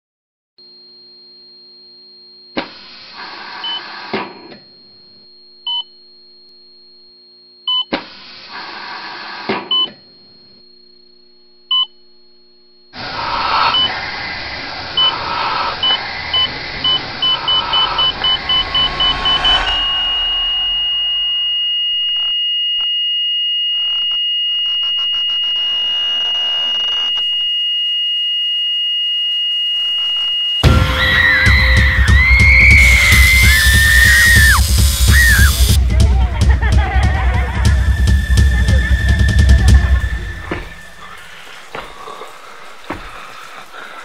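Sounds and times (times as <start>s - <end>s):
faint hum with high tone: 0.6s - 36.1s
surges of harsh noise: 13.0s - 21.7s, 30.6s - 35.8s
electronic beeps: 13.6s - 14.0s, 15.0s - 21.7s.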